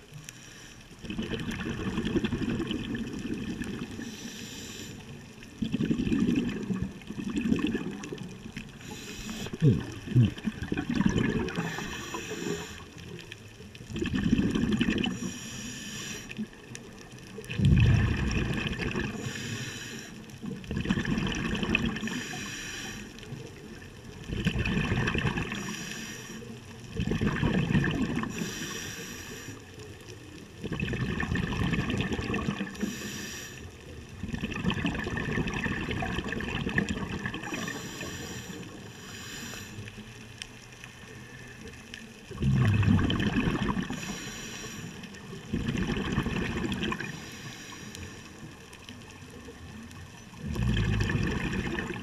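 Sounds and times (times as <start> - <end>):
regulator inhale hiss: 0.1 - 1.0, 3.9 - 5.2, 8.7 - 9.7, 11.5 - 13.1, 15.0 - 16.6, 19.1 - 20.4, 22.0 - 23.4, 25.5 - 26.7, 28.2 - 29.9, 32.6 - 33.9, 37.4 - 40.3, 43.8 - 45.3, 47.0 - 48.6
exhaled bubbles underwater: 1.0 - 52.0.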